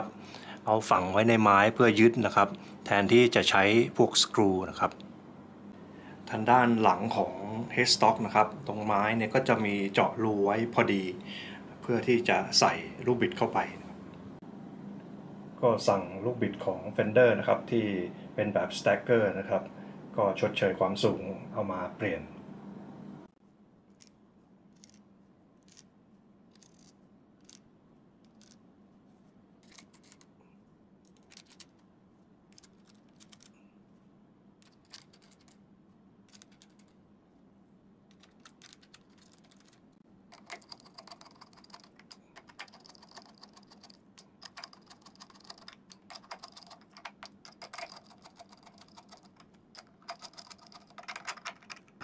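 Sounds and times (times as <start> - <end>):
rapid rattle of small metal parts: 26.5 - 27.6, 29.6 - 30.3, 31.0 - 31.8, 32.5 - 33.6, 34.6 - 35.6, 36.3 - 37.0, 38.1 - 52.0.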